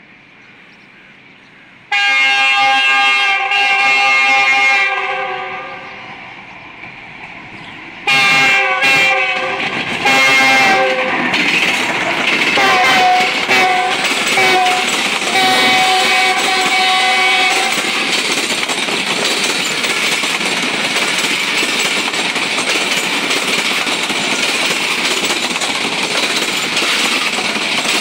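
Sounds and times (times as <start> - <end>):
locomotive horn blasts: 1.9 - 6.0, 8.0 - 11.2, 12.6 - 18.0
train wheels rumbling and clattering: 5.9 - 28.0.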